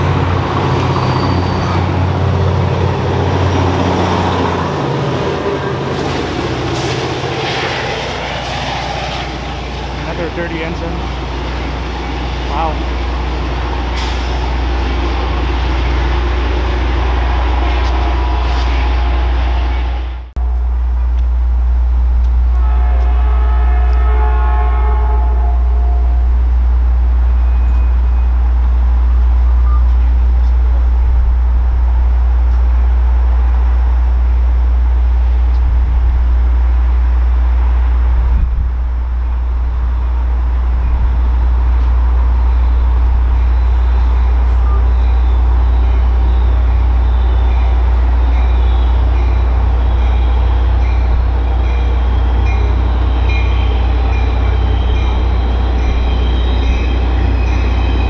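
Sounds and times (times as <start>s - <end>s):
rail noise: 0.0s - 58.0s
train rumbling: 0.0s - 58.0s.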